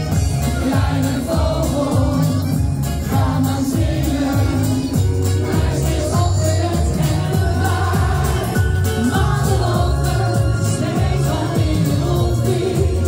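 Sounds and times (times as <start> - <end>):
pop song with singer: 0.0 - 13.0.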